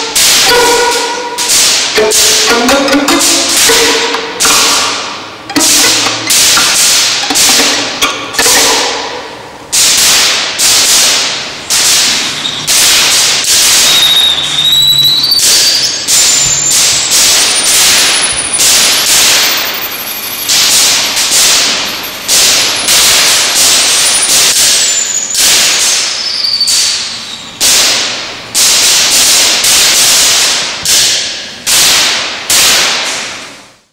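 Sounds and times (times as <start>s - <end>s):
violin scratchy bow strokes: 0.0s - 8.0s.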